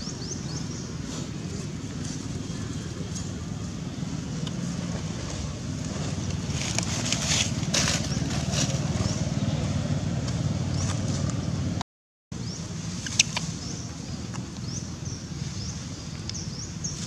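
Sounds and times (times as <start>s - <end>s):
low outdoor rumble: 0.0s - 11.8s
dry leaves crackling: 5.2s - 9.4s.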